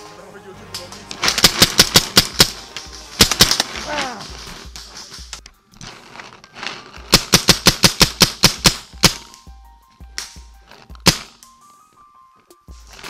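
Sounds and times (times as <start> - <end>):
paintball marker firing: 1.2 - 3.9, 7.1 - 9.4, 11.0 - 11.4.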